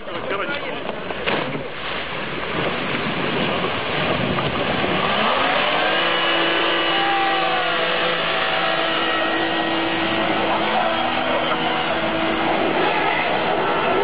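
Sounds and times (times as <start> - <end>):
tyre and ground noise: 0.0 - 14.0
car engine droning under load: 3.7 - 14.0.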